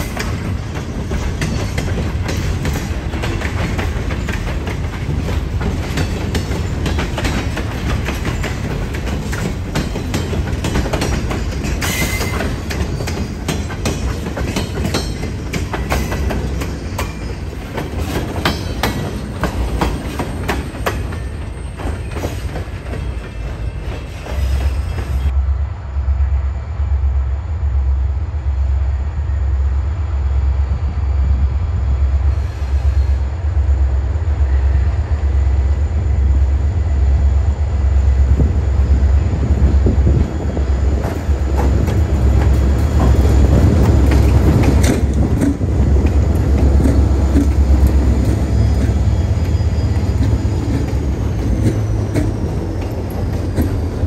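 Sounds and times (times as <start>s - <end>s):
freight cars clattering over rail joints: 0.0s - 25.3s, 41.0s - 54.0s
train wheel clicks: 0.0s - 25.3s, 40.2s - 54.0s
diesel locomotive rumble: 0.0s - 54.0s.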